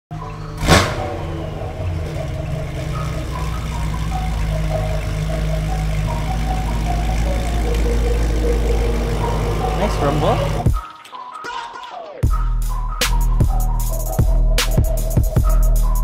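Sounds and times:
car engine idling: 0.1s - 10.8s.

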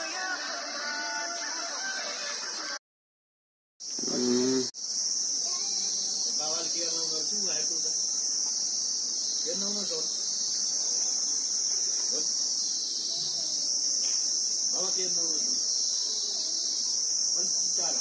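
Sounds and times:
insects chirring: 3.8s - 18.0s.

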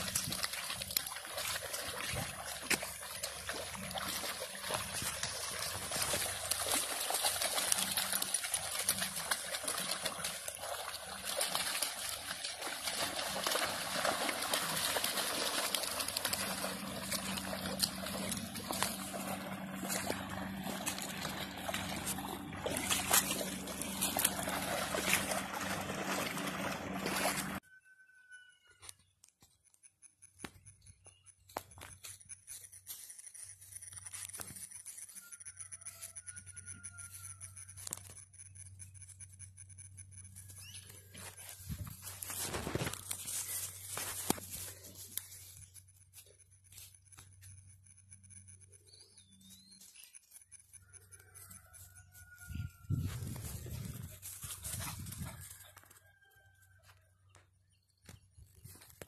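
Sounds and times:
dogs splashing through water: 0.0s - 27.6s.

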